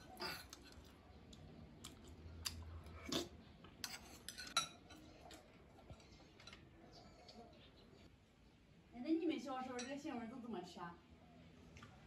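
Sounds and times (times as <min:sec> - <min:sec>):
spoons clinking in bowls: 0:03.8 - 0:05.1.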